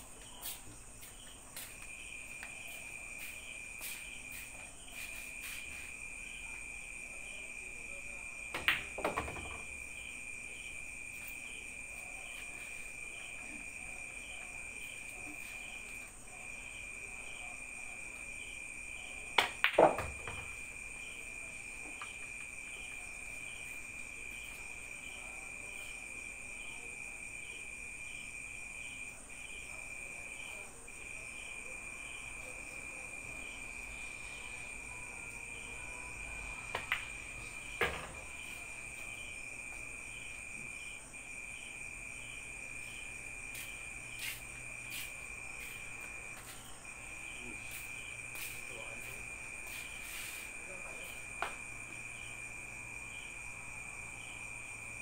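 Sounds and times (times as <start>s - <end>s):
crickets chirping: 0.0s - 55.0s
pool balls clacking: 8.6s - 9.8s, 19.4s - 20.6s.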